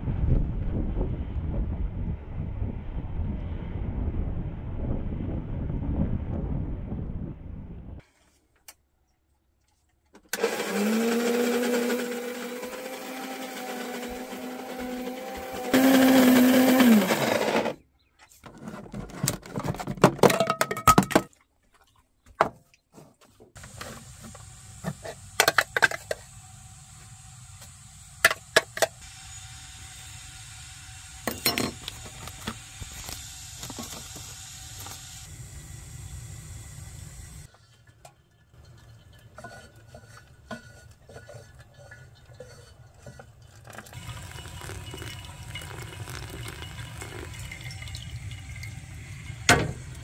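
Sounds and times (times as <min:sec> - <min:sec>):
coffee grinder running: 0:10.4 - 0:17.8, 0:23.6 - 0:37.5, 0:43.7 - 0:50.0
clattering and knocking: 0:18.5 - 0:21.3.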